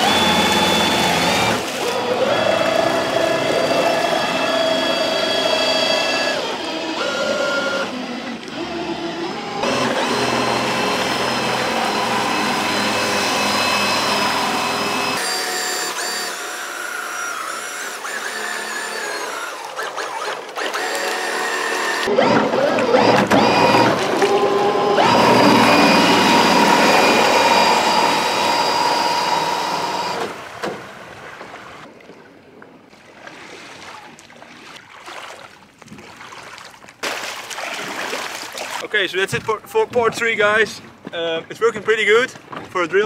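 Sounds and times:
drill motor whining: 0.0 - 30.4.

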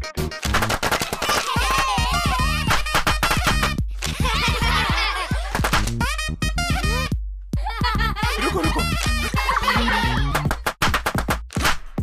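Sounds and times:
upbeat music with bass line: 0.0 - 0.8, 1.5 - 12.0
children shouting and laughing: 1.0 - 2.8, 4.1 - 5.5, 6.7 - 10.5.

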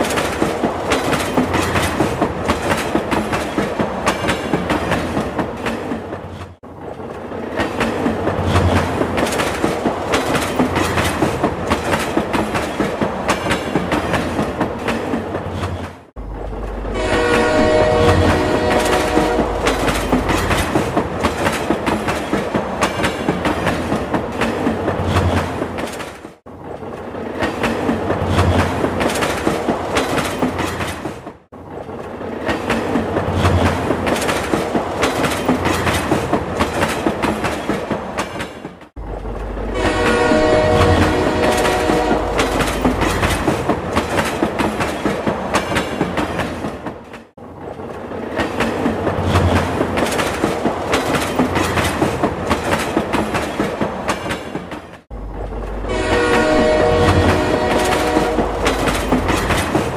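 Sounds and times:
train wheels clattering over rail joints: 0.0 - 16.8, 18.2 - 59.9
train horn: 16.8 - 20.0, 39.6 - 42.6, 55.8 - 58.8.

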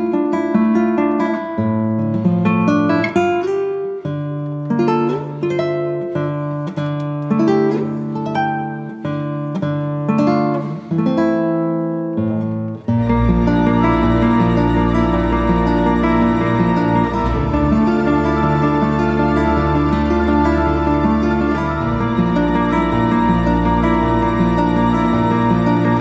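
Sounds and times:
plucked-string instrumental music: 0.0 - 26.0
bass line: 13.0 - 26.0.

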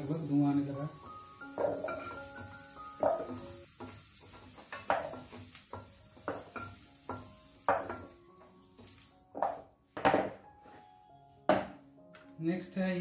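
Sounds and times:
oil sizzling: 0.0 - 10.4.

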